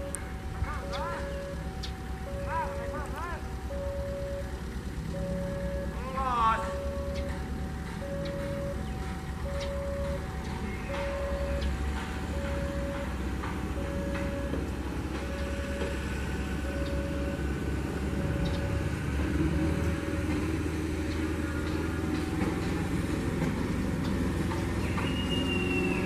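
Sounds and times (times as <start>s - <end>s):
diesel engine idling: 0.0s - 26.0s
short beeps: 2.3s - 4.6s, 5.2s - 7.4s, 8.0s - 11.7s.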